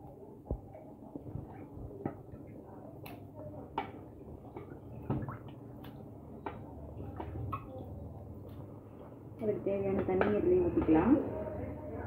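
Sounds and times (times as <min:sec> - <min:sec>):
thick gravy squelching and popping: 0:00.4 - 0:09.2.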